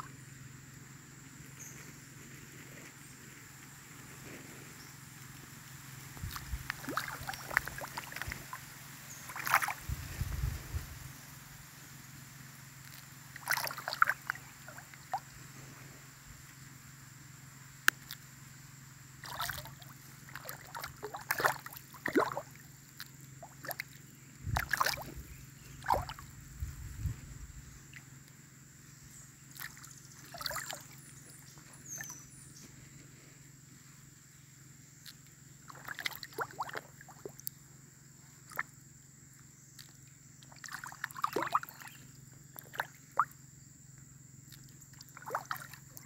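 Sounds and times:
steady low hum: 0.0s - 46.0s
water sloshing and splashing: 6.2s - 10.8s, 12.8s - 15.3s, 19.2s - 26.4s, 29.5s - 31.0s, 35.7s - 37.5s, 38.4s - 38.7s, 39.8s - 42.0s, 42.6s - 43.3s, 44.5s - 46.0s.

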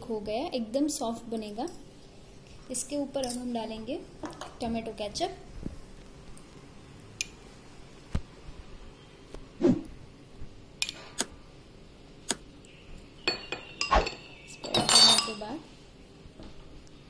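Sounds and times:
glass bowls and spoon clinking: 13.2s - 15.6s.

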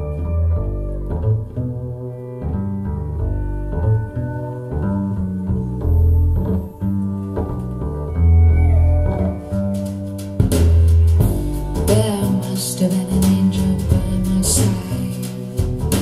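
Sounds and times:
deep bass line: 0.0s - 16.0s
plucked guitar: 0.0s - 16.0s
person singing: 11.4s - 16.0s.

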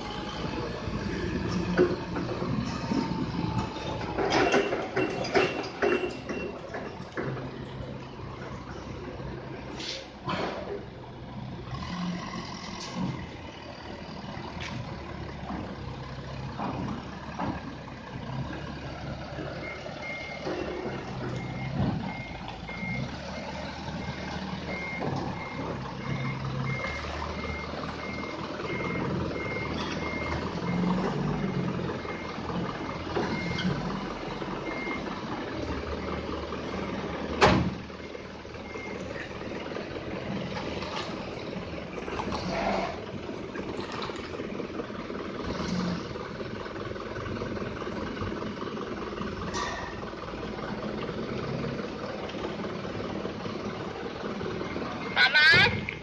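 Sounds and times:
forklift running: 0.0s - 56.0s
reversing alarm beeping: 19.6s - 35.1s, 38.0s - 39.6s.

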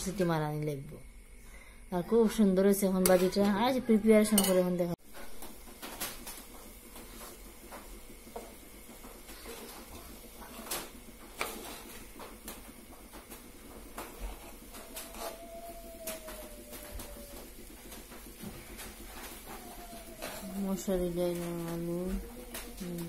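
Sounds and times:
spoon clinking against pot: 4.4s - 4.6s
spoon scraping in steel pot: 15.1s - 15.4s.

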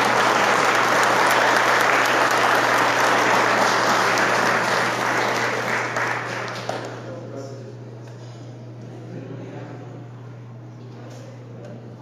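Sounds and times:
people clapping: 0.0s - 7.2s.

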